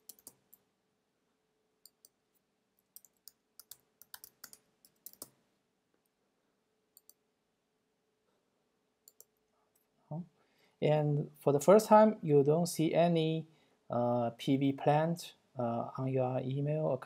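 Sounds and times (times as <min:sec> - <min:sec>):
keyboard keys clicking: 0:00.0 - 0:00.4, 0:03.0 - 0:05.3.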